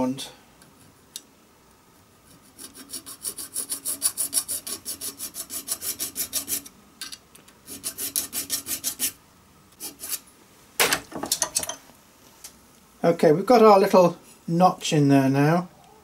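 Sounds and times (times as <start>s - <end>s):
file rasping on metal: 2.3s - 6.7s, 7.6s - 9.2s, 9.8s - 10.2s.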